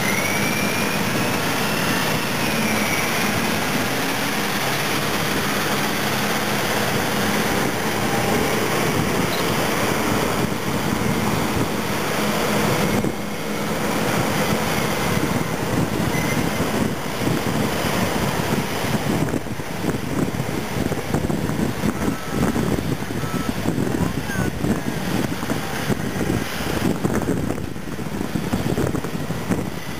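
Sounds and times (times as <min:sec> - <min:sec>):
diesel engines running under load: 0:00.0 - 0:29.9.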